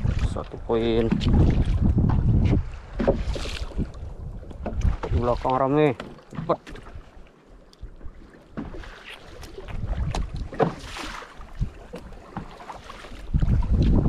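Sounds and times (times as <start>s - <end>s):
wind buffeting microphone: 0.0s - 5.9s, 9.4s - 14.0s
water slapping against canoe: 0.0s - 14.0s.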